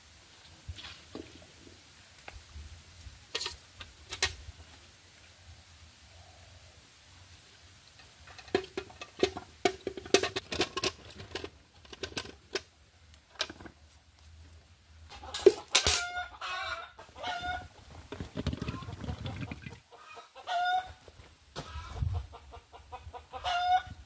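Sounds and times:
chicken calling: 0:16.0 - 0:17.8, 0:18.5 - 0:21.0, 0:23.3 - 0:24.0.

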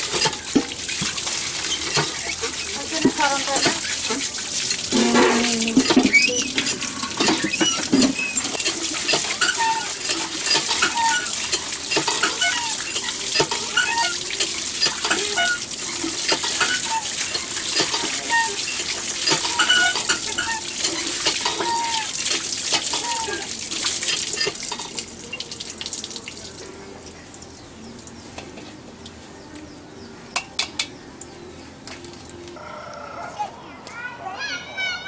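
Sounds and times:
fish being rubbed and rinsed: 0:00.0 - 0:24.7
water pouring from a spout: 0:00.0 - 0:28.2.

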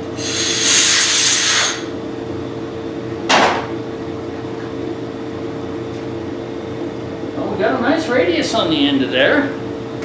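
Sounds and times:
milling machine humming: 0:00.0 - 0:03.2
compressed air blow gun hissing: 0:00.2 - 0:01.9.

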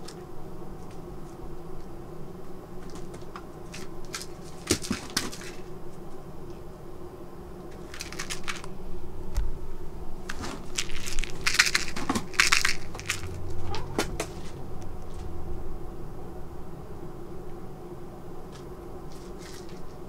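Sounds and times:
faint steady hum: 0:00.0 - 0:20.0
cats scratching cardboard: 0:02.8 - 0:05.7, 0:07.7 - 0:08.8, 0:10.2 - 0:14.6, 0:18.5 - 0:20.0.

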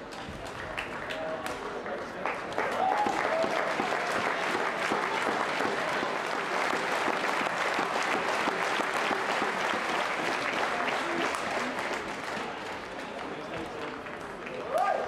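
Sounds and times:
crowd applauding: 0:00.0 - 0:15.0.

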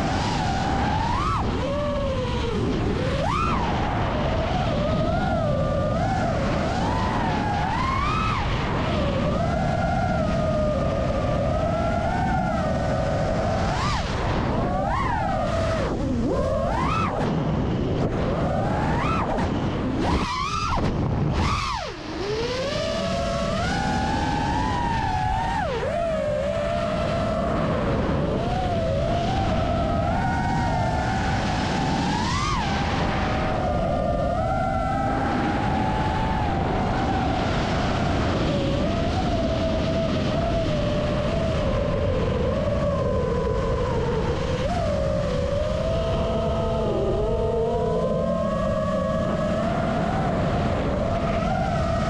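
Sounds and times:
quadcopter motors whining: 0:14.6 - 0:37.3.

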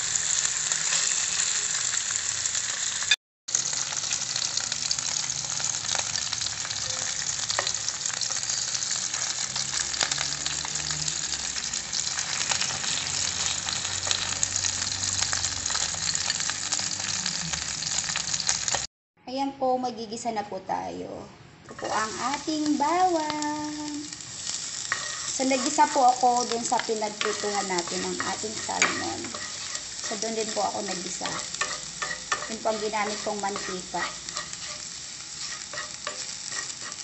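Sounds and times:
fish sizzling in oil: 0:00.0 - 0:18.9, 0:21.8 - 0:37.0
metal fork tapping and scraping: 0:27.2 - 0:30.2, 0:31.2 - 0:37.0.

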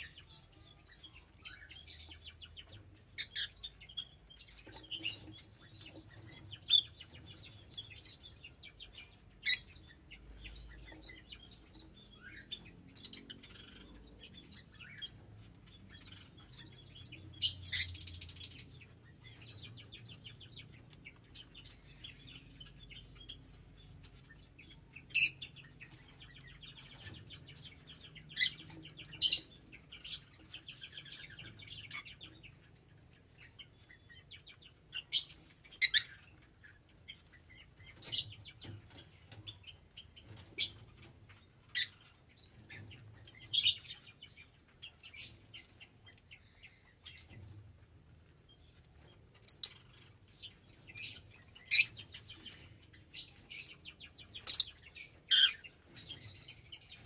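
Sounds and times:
parrots chirping: 0:00.0 - 0:47.5, 0:48.6 - 0:57.0
parrots chattering: 0:08.9 - 0:11.5, 0:12.1 - 0:19.2, 0:41.6 - 0:42.0, 0:50.9 - 0:57.0.

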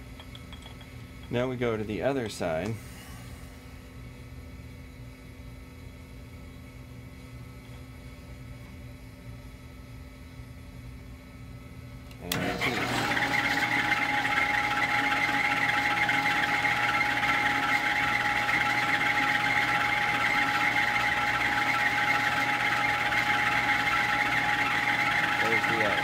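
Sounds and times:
spindle motor whining: 0:12.2 - 0:26.0.

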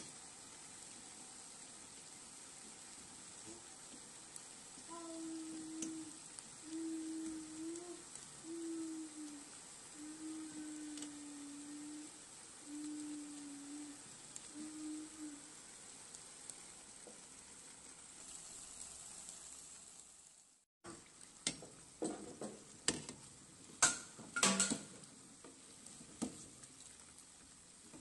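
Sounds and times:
pastries sizzling in hot oil: 0:00.0 - 0:28.0
metal utensil clinking on pan: 0:23.8 - 0:24.9.

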